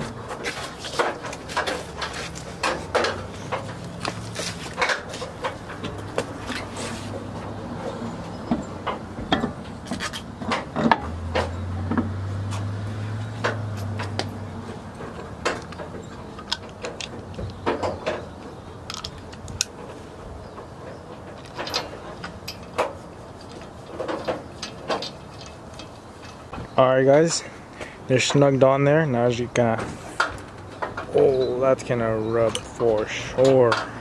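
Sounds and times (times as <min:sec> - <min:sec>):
lug wrench metal clicks: 0:15.0 - 0:18.2, 0:18.8 - 0:19.9.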